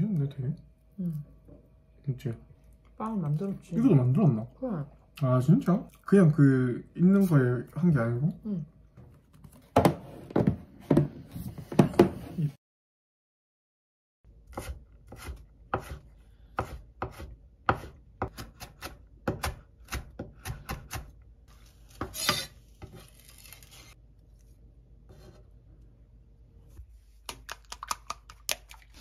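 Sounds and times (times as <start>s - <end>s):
knife chopping on wooden board: 14.5s - 16.0s, 16.6s - 21.2s
blade scraping board: 22.0s - 24.0s.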